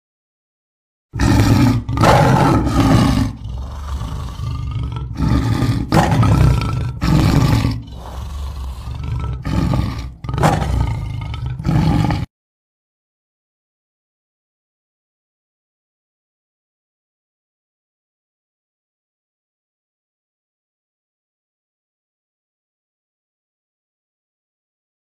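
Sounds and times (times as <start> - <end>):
big cat growling: 1.2 - 12.3
big cat roaring: 1.2 - 12.3.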